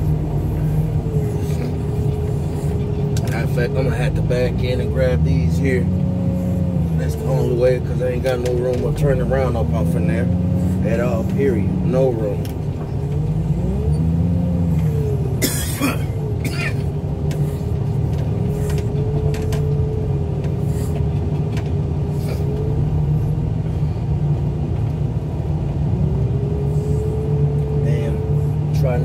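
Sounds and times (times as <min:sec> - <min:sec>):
loader engine droning: 0:00.0 - 0:29.0.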